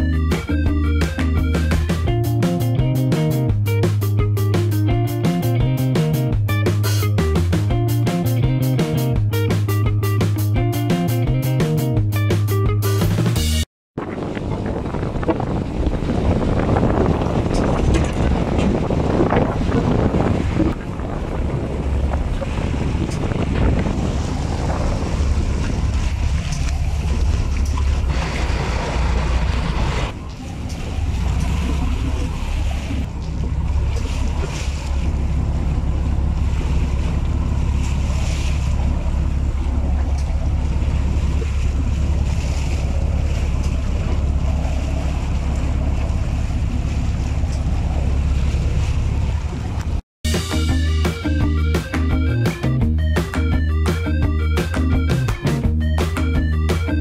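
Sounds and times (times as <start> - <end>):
wind buffeting microphone: 14.0 - 50.0
sea wash: 14.0 - 57.0
steady low rumble: 14.0 - 57.0.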